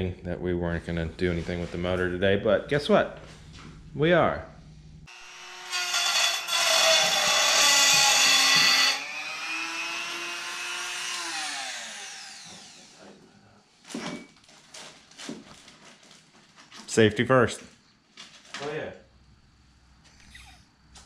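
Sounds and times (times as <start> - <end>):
power tool grinding: 5.1 - 13.0.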